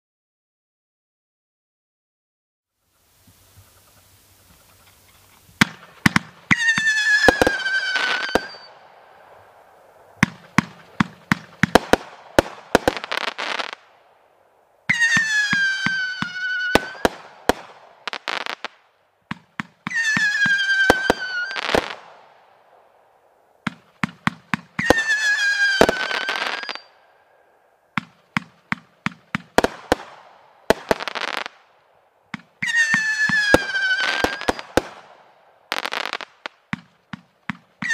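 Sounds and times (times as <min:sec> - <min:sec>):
firework hiss: 0:02.9 - 0:14.0
firework whistles: 0:05.1 - 0:13.8, 0:14.9 - 0:18.7, 0:19.8 - 0:22.3, 0:23.7 - 0:28.5, 0:32.4 - 0:35.0
firework launch and burst bangs: 0:05.6 - 0:08.8, 0:10.2 - 0:13.9, 0:28.0 - 0:31.7.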